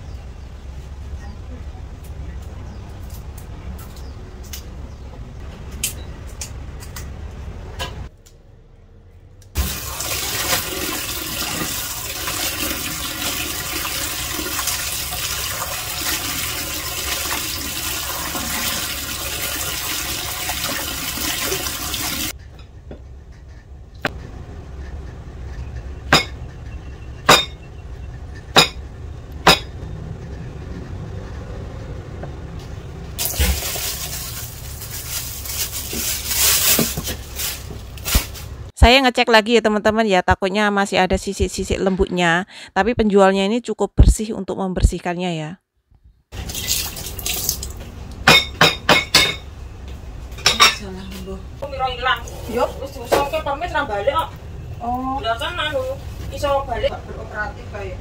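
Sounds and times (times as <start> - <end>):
hands washing leaves: 9.6 - 22.3, 33.2 - 38.6, 46.4 - 48.0
tap water running into basin: 9.6 - 22.3, 33.2 - 34.6, 46.3 - 47.8
plastic bag crinkling: 33.2 - 38.5.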